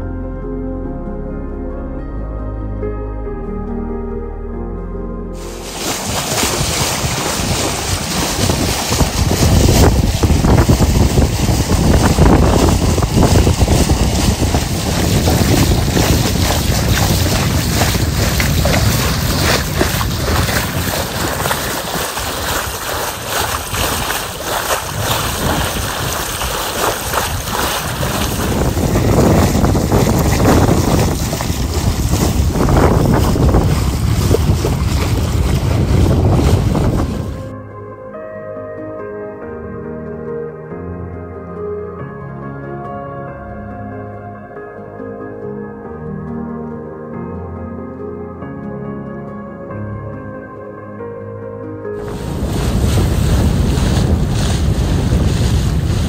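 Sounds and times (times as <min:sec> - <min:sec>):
water splashing along a hull: 0:05.4 - 0:37.6, 0:51.9 - 0:56.0
wind buffeting microphone: 0:05.6 - 0:37.5, 0:52.0 - 0:56.0.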